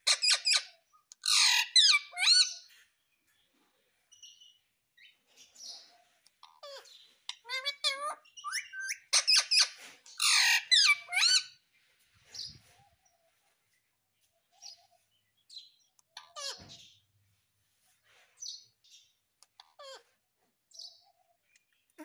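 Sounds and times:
parakeet squawks and chirps: 0.0s - 2.7s, 5.4s - 11.6s, 16.2s - 17.0s, 19.4s - 20.1s.

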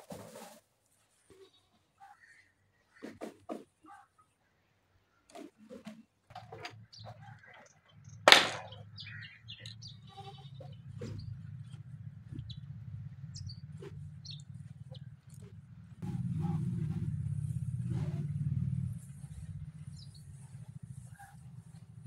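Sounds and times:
knocks on wooden trough: 8.3s - 8.7s
loud sharp sound: 8.3s - 8.7s
goats bleating: 10.0s - 10.7s.

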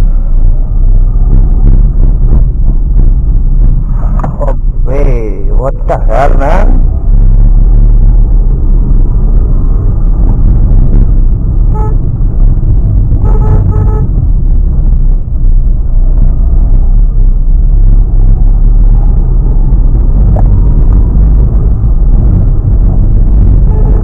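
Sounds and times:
car engine and road noise: 0.0s - 24.0s
car horn tooting: 11.7s - 12.0s, 13.2s - 14.1s, 23.6s - 24.0s.

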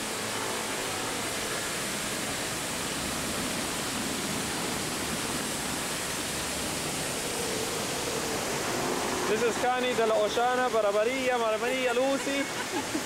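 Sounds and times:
fountain water splashing: 0.0s - 13.0s.

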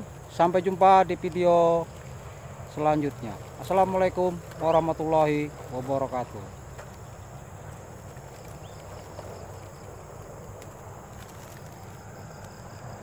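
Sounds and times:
high-pitched insect chorus: 0.0s - 13.0s
low steady rumble: 0.0s - 13.0s.

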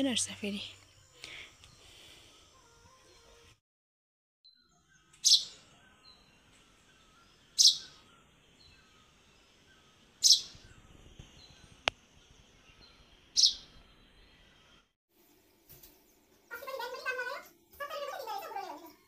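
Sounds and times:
faint bird chirps: 4.5s - 14.9s
small bird scratchy call: 7.6s - 8.0s.

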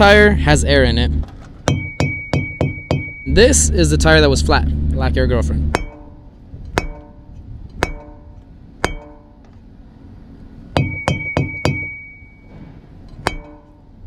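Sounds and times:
high ringing tone: 0.0s - 6.1s, 10.8s - 12.6s
metal bat striking tires: 1.0s - 4.2s, 5.6s - 9.6s, 10.7s - 14.0s.

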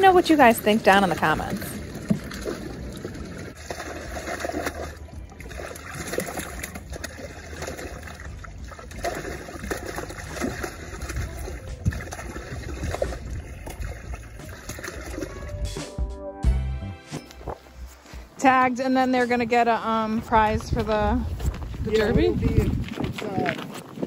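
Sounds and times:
water splashing into slush: 0.0s - 15.6s.

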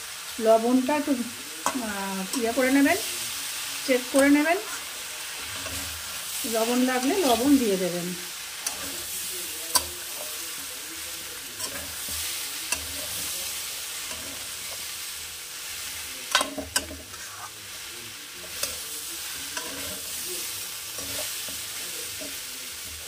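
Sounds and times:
vegetables sizzling in pan: 0.0s - 23.0s
metal spatula clinking and scraping: 4.1s - 7.6s, 8.6s - 10.5s, 11.5s - 14.9s, 18.4s - 23.0s.

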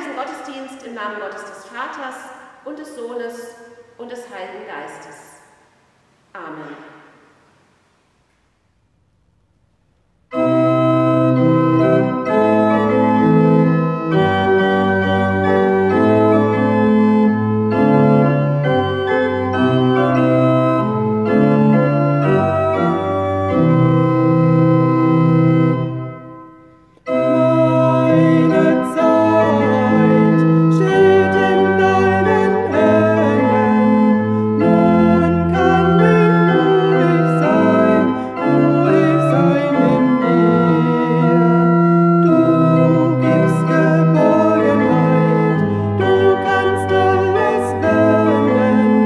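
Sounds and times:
pipe organ playing hymn: 10.3s - 49.0s.

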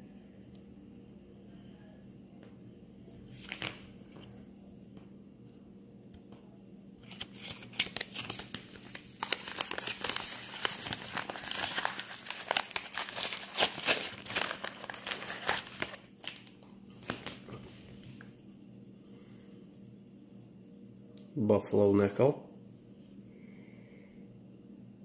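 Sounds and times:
paper crinkling: 3.3s - 4.4s, 7.0s - 17.8s.

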